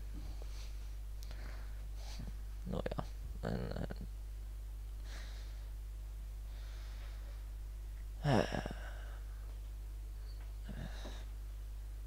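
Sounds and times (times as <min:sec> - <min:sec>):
steady low hum: 0:00.0 - 0:12.0
man breathing: 0:00.2 - 0:02.4, 0:05.0 - 0:05.8, 0:06.4 - 0:07.6, 0:08.2 - 0:09.6, 0:10.3 - 0:11.4
man sighing: 0:08.2 - 0:09.4, 0:10.6 - 0:11.3.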